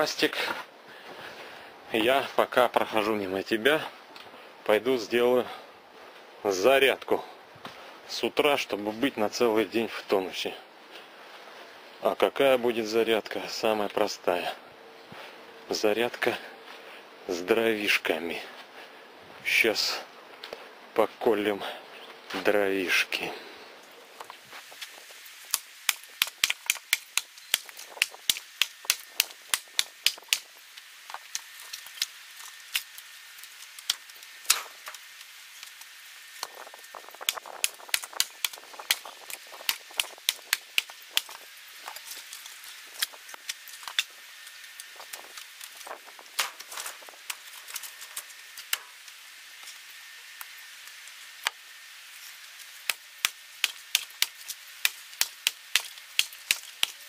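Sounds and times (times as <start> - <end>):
axe splitting wood: 25.5 - 30.5, 33.8 - 35.0, 37.2 - 41.4, 52.8 - 57.0.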